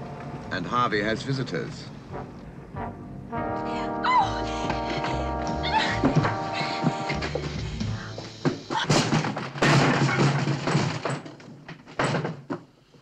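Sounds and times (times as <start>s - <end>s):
background music: 0.0s - 8.7s
door crashing down: 8.8s - 12.6s.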